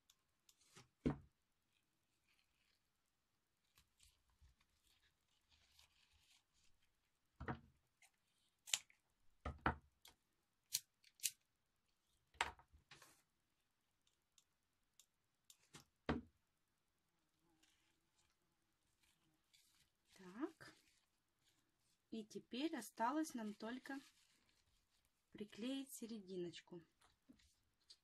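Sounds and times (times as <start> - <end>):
ribbon rustling: 0.3 - 9.4, 17.3 - 26.3, 26.9 - 28.0.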